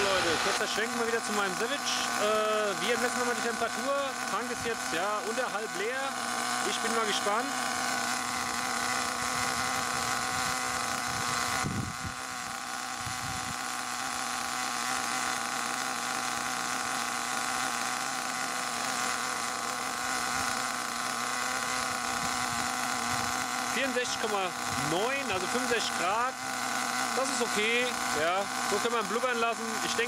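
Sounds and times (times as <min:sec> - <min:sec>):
nitro engine idling: 0:00.0 - 0:30.0.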